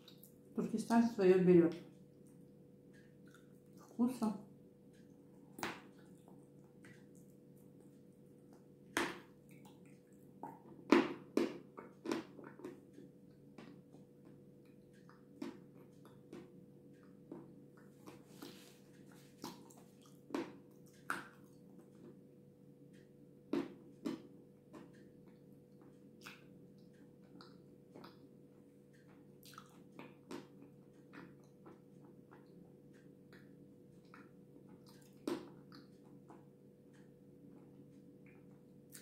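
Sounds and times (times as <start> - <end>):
wet mouth eating sounds: 3.2 - 4.0, 17.8 - 21.6, 29.4 - 32.5, 38.3 - 39.0.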